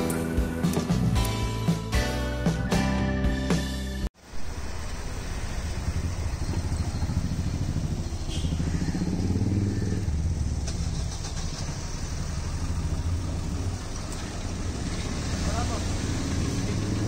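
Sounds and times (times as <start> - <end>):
vehicle engine running: 4.2 - 17.0.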